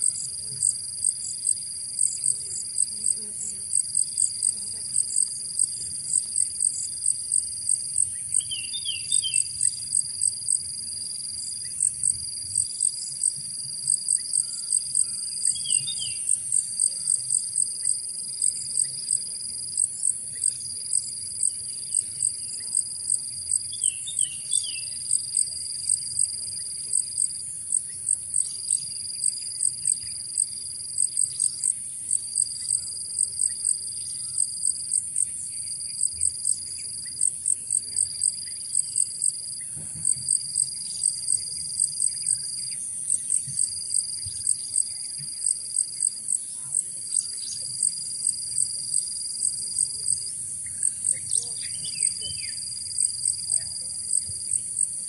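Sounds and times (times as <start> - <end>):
insects chirping: 0.0 - 55.0.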